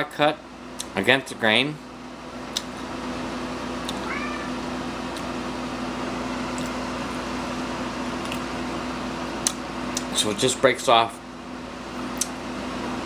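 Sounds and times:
fan motor humming: 0.0s - 13.0s
cat meowing: 3.9s - 4.7s.

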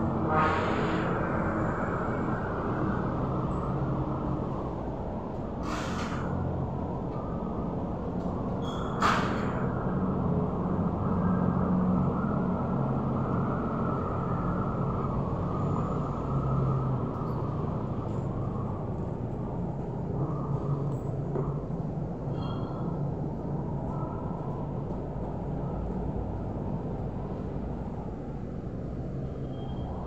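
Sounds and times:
low rumbling background noise: 0.0s - 30.0s
brief hisses: 5.6s - 6.3s.

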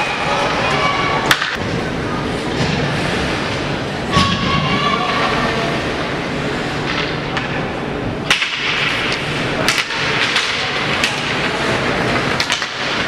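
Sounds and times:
noisy rink background: 0.0s - 13.0s
hockey sticks and puck knocking: 8.3s - 13.0s.

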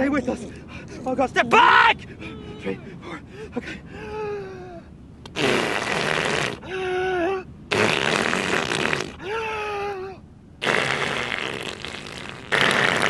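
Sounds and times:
raspberries blown on skin: 5.3s - 6.6s, 7.7s - 9.2s, 10.6s - 13.0s.

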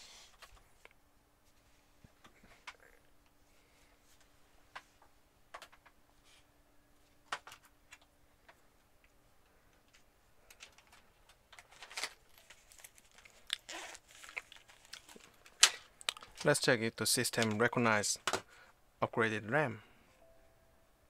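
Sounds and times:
small clicks and rustles: 7.0s - 16.6s.

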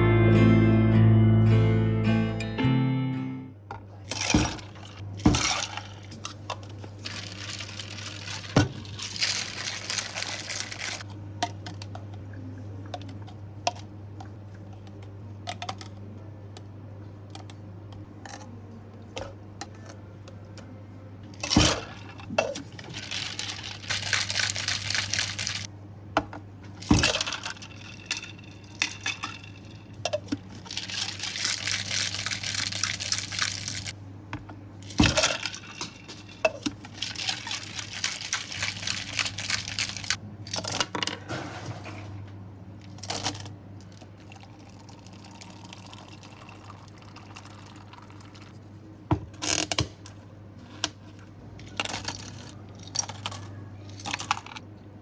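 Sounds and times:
ice rattling in a shaker cup: 7.0s - 11.0s, 21.6s - 25.7s, 26.8s - 33.9s, 34.8s - 40.8s, 43.0s - 48.5s.

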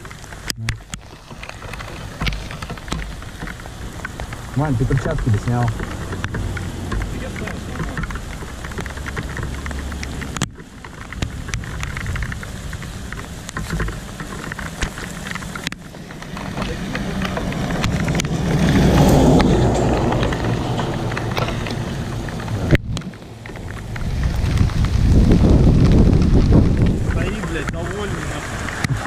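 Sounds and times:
low traffic rumble: 0.0s - 29.0s
traffic engine noise: 0.0s - 29.0s
tyres hissing on wet road: 0.0s - 29.0s
vehicle passing: 1.5s - 10.4s, 15.9s - 29.0s.

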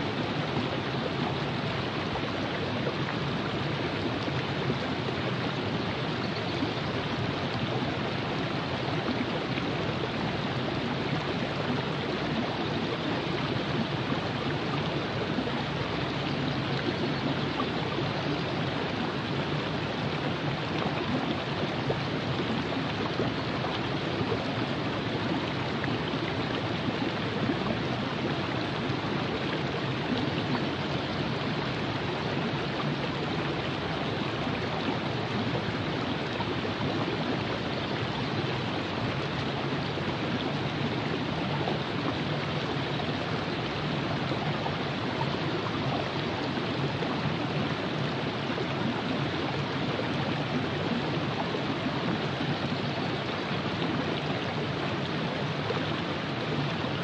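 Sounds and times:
river flowing: 0.0s - 57.0s.

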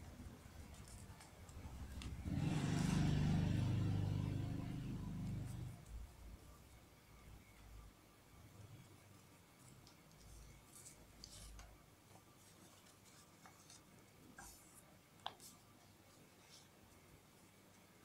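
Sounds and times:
paper rustling and creasing: 0.2s - 2.9s, 9.6s - 16.7s.

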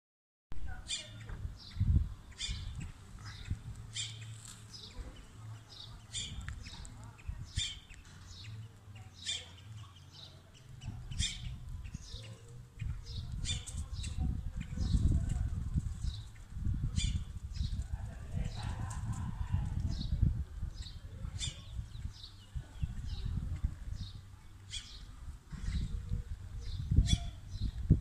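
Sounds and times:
low microphone rumble: 0.5s - 28.0s
small bird chirping: 0.8s - 15.1s, 24.0s - 27.9s.

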